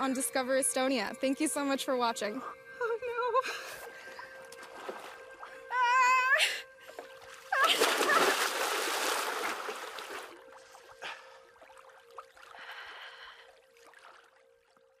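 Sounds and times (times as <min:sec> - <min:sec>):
water lapping: 0:03.6 - 0:05.8, 0:06.6 - 0:15.0
person crying out: 0:07.6 - 0:08.4.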